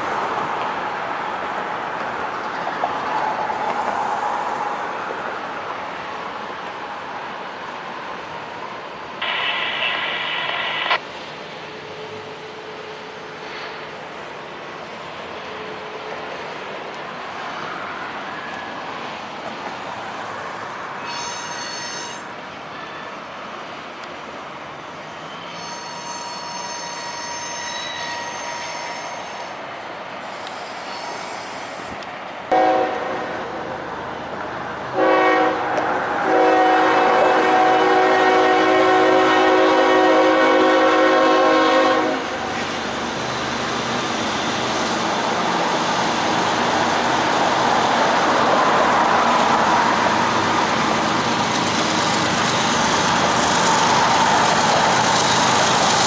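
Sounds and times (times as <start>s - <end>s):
freight train rumbling: 0.0s - 56.0s
locomotive air horn blasts: 32.5s - 33.2s, 35.0s - 42.3s.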